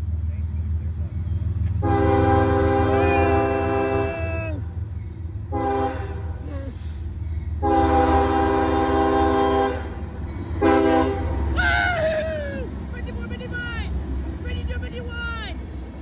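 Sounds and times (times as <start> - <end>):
train low rumble: 0.0 - 16.0
locomotive air horn blasts: 1.8 - 4.4, 5.5 - 6.9, 7.6 - 10.0, 10.6 - 11.4.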